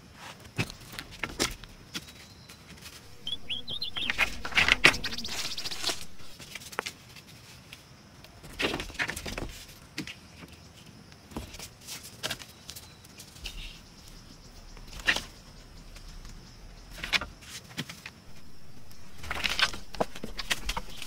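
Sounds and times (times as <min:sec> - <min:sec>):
bird chirping: 0:02.2 - 0:06.3, 0:12.8 - 0:17.3, 0:18.3 - 0:21.0
rustling scrape: 0:02.8 - 0:07.6.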